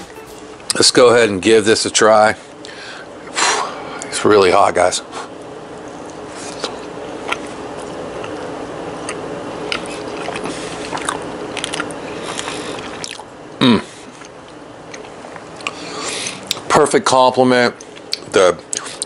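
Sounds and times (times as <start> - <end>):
sound falling in pitch: 0.0 - 0.7
man chewing: 6.5 - 13.3, 14.0 - 16.6.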